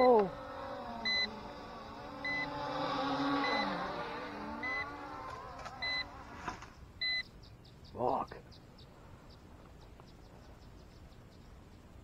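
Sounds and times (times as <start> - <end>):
drone propellers whirring: 0.0 - 6.7.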